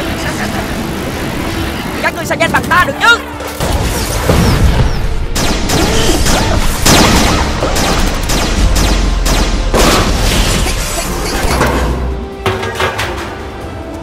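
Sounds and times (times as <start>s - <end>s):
explosions and blasts: 3.5s - 11.8s.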